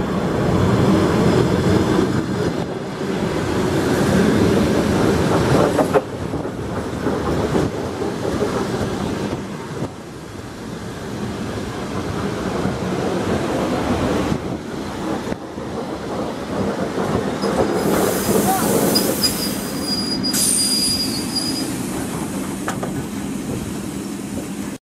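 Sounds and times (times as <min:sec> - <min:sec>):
train wheels on rails: 0:00.0 - 0:24.8
high wheel squeal: 0:17.9 - 0:21.9.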